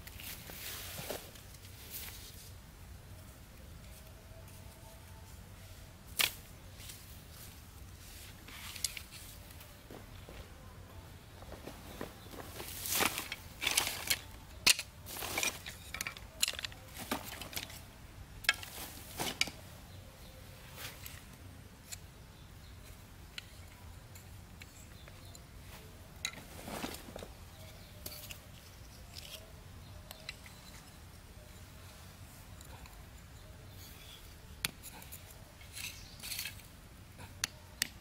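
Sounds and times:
bamboo cracking as cut: 6.2 - 6.4.

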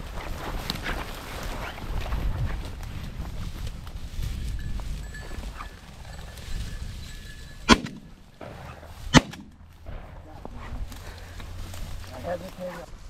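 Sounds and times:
shotgun shots with echo: 7.7 - 10.2.

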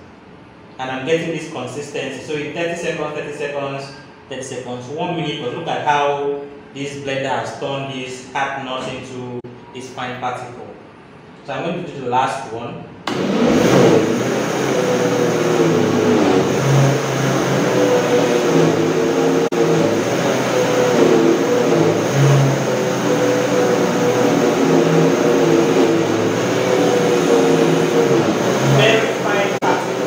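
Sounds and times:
blender running: 13.1 - 30.0.

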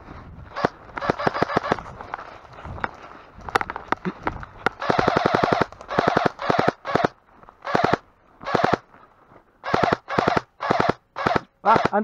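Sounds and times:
airsoft rifle full-auto bursts: 0.6 - 1.8, 4.8 - 8.8, 9.6 - 12.0.

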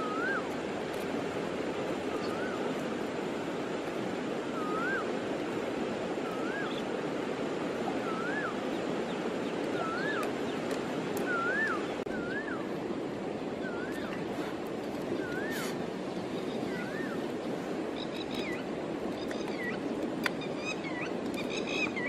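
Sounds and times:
bird whistling: 0.0 - 0.4, 4.6 - 5.1, 6.3 - 6.8, 8.0 - 8.6, 9.8 - 10.3, 11.2 - 12.7, 13.6 - 14.2, 15.2 - 15.8, 16.7 - 17.2
river water rushing: 0.0 - 22.0.

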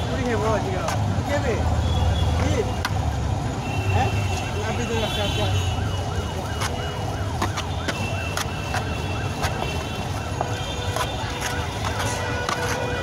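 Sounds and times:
low traffic rumble: 0.0 - 13.0
warbling electronic siren: 5.5 - 10.9.

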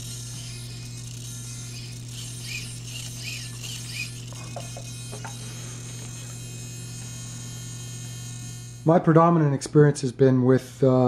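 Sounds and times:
servos whining in rising chirps: 0.0 - 8.8
steady electrical hum: 0.0 - 11.0.

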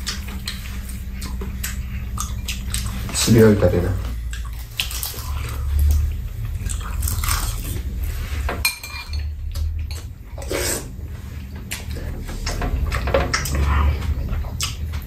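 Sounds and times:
utensils clinking against bowls: 8.4 - 15.0.

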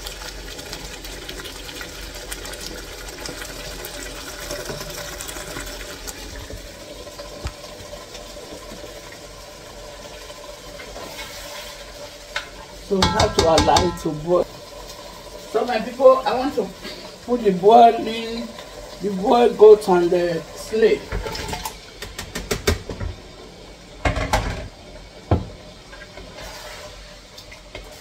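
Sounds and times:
stew bubbling in a pot: 0.0 - 28.0
spoon knocking a pot: 13.0 - 14.1.

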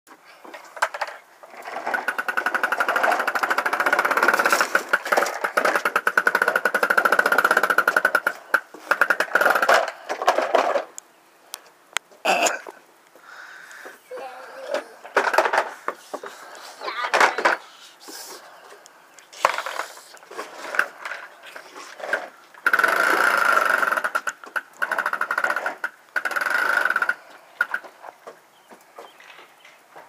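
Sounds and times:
toy truck wheels rattling on wood: 0.4 - 11.0, 14.6 - 18.6, 19.3 - 28.4.

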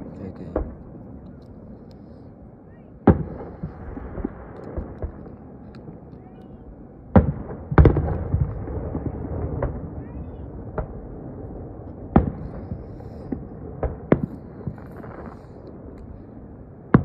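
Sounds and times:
firework shells booming: 0.0 - 1.4, 3.0 - 6.1, 7.1 - 16.3
small firework pops: 3.1 - 6.5.

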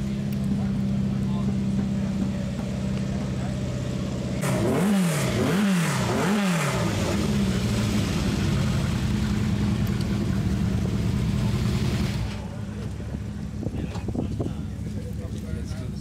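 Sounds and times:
racing car engine revving: 2.6 - 12.5.

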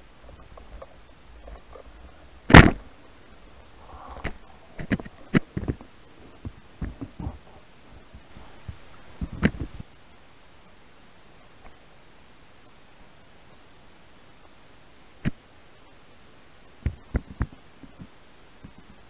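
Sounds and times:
loud thump: 2.5 - 2.8.

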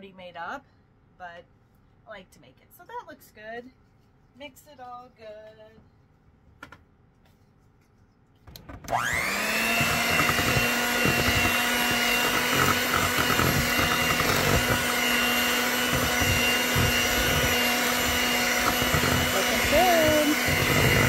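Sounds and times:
electric hand mixer whining: 8.7 - 21.0.

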